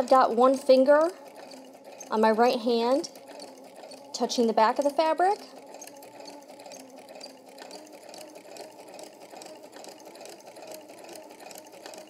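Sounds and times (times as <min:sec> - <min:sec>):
needle mechanism ticking: 0:00.0 - 0:12.0
sewing machine motor hum: 0:00.0 - 0:12.0.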